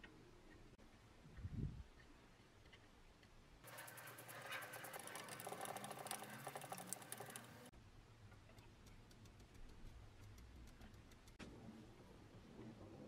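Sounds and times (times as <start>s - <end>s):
faint ticks: 8.5s - 11.4s.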